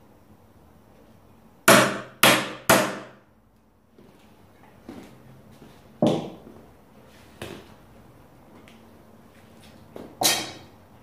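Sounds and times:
hard knocks on wood: 1.7s - 3.2s.

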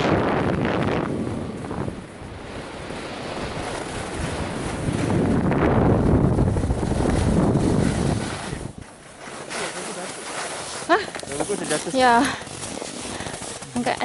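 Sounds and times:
wind rushing over microphone: 0.0s - 8.9s
skis scraping on packed snow: 2.5s - 14.0s.

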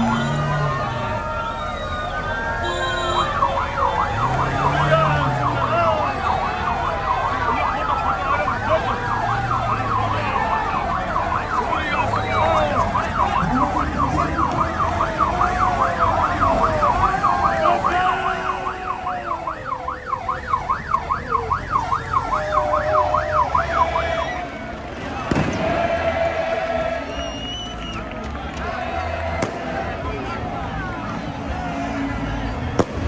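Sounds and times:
police siren wailing and yelping: 0.0s - 24.6s
noisy crowd: 0.0s - 33.0s.

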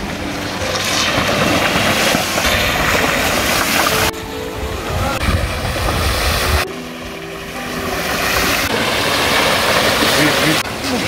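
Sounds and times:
wind rumbling on microphone: 0.0s - 6.7s
bike tyres splashing through water: 0.4s - 4.1s, 5.3s - 11.0s.

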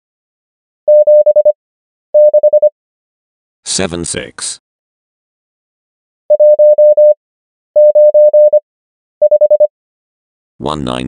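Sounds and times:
morse code beeps: 0.9s - 1.6s, 2.2s - 2.7s, 6.3s - 7.2s, 7.8s - 8.6s, 9.2s - 9.7s.

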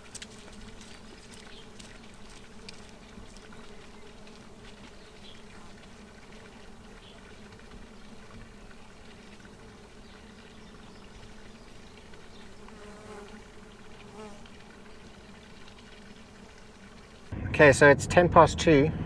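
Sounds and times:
faint insect-like buzzing: 0.0s - 17.3s
low hum: 17.2s - 19.0s.

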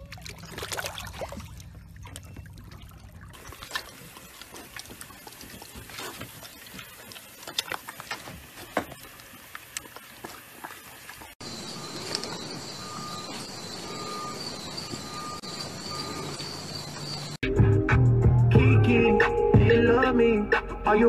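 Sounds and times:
water sloshing in paddling pool: 0.0s - 11.4s
low steady rumble with water: 0.0s - 11.9s.

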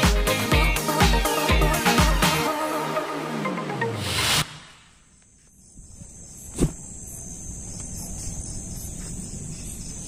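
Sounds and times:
electronic dance music: 0.0s - 4.6s
night insects trilling: 5.0s - 10.0s.

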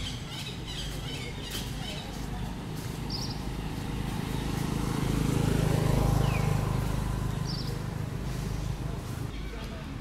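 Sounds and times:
passing vehicle engine rumble: 1.4s - 9.3s.

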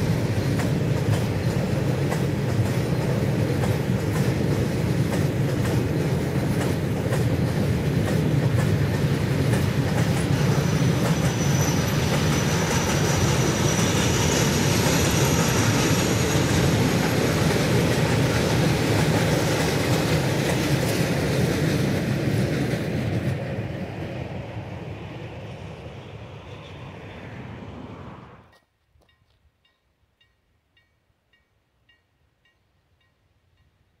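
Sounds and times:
train wheels rumbling on rail: 0.0s - 29.8s
high wheel squeal: 10.3s - 16.7s.

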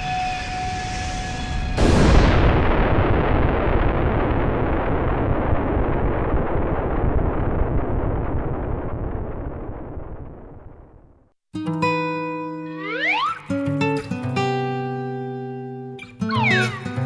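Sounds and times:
rumbling explosion roar: 0.5s - 11.3s.

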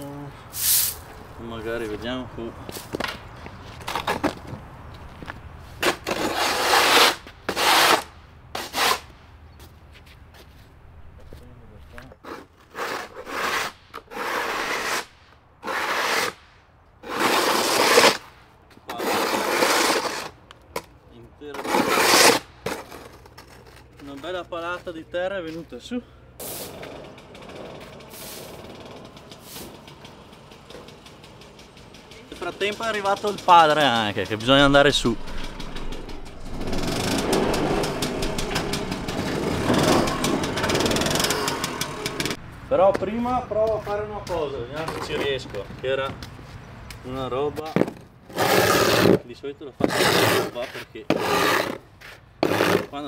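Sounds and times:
dirt scraping on concrete: 0.5s - 9.1s, 11.9s - 25.8s, 26.4s - 31.0s, 32.4s - 46.6s, 47.4s - 53.0s
excavator diesel engine running: 33.1s - 42.4s.

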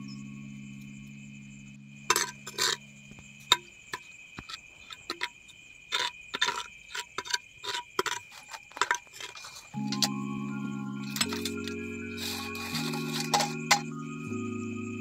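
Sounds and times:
crickets chirring: 0.0s - 15.0s
short scraping strokes: 12.1s - 13.8s.

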